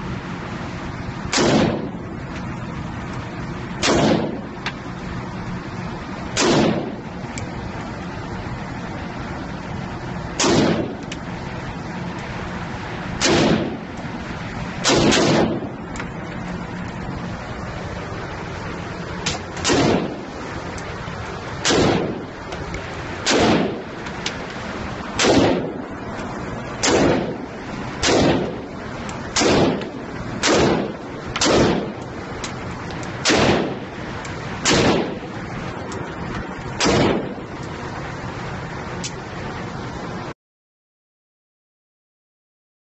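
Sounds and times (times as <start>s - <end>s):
rifle shots with echo: 1.3s - 2.0s, 3.8s - 4.6s, 6.3s - 7.1s, 10.4s - 11.0s, 13.2s - 13.9s, 14.8s - 15.8s, 19.3s - 20.3s, 21.6s - 22.4s, 23.2s - 24.0s, 25.1s - 25.9s, 26.8s - 32.0s, 33.2s - 33.9s, 34.6s - 35.3s, 36.8s - 37.4s.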